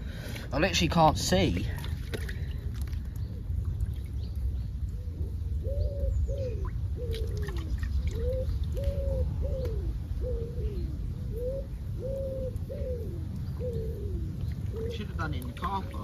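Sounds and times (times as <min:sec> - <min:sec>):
steady low rumble: 0:00.0 - 0:16.0
pigeon cooing: 0:04.9 - 0:16.0.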